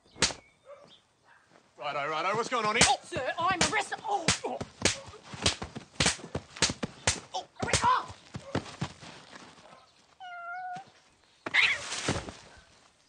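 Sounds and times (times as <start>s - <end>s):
sharp hand slaps: 0.2s - 0.4s, 2.7s - 8.1s.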